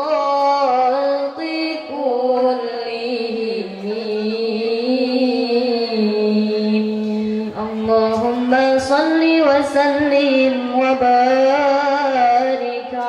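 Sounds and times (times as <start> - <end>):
women singing devotional song: 0.0 - 13.0.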